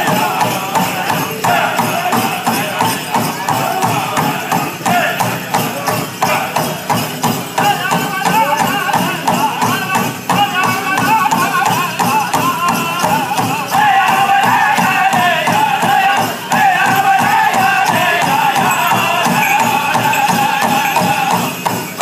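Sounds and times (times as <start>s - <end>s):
high-pitched group singing: 0.0s - 7.0s, 7.6s - 22.0s
steady big drum beat: 0.0s - 22.0s.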